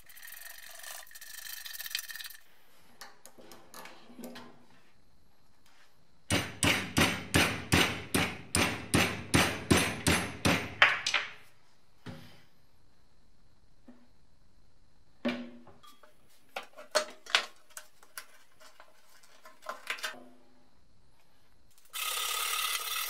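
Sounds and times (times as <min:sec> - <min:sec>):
hammer tapping metal: 0:06.3 - 0:10.8.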